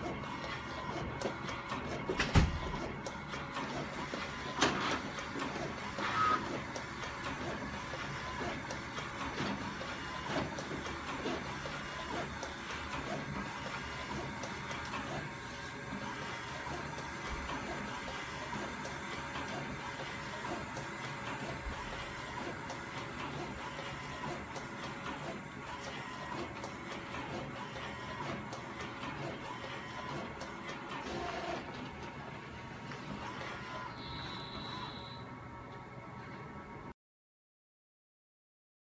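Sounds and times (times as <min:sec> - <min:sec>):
printer carriage shuttling: 0:00.5 - 0:12.1.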